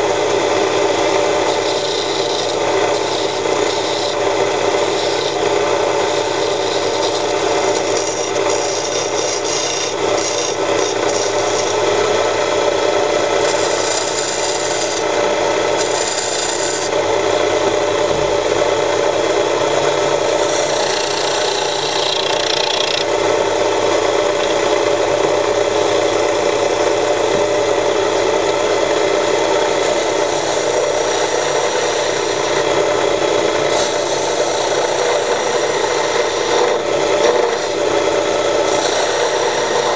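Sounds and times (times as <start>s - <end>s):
chisel scraping spinning wood: 0.0s - 17.4s, 19.0s - 23.3s, 28.4s - 39.9s
wood lathe running: 0.0s - 39.9s.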